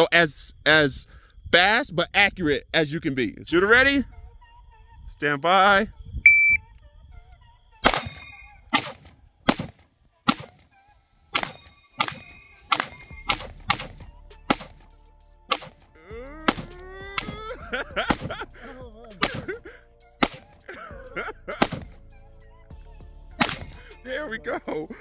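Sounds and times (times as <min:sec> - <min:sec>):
rifle gunshots: 0:07.8 - 0:10.7, 0:11.3 - 0:14.8, 0:15.5 - 0:15.8, 0:16.5 - 0:17.4, 0:18.1 - 0:18.3, 0:19.2 - 0:19.6, 0:20.2 - 0:20.7, 0:21.6 - 0:22.0, 0:23.4 - 0:23.8
steel target plates ringing: 0:07.9 - 0:08.8, 0:11.3 - 0:13.7.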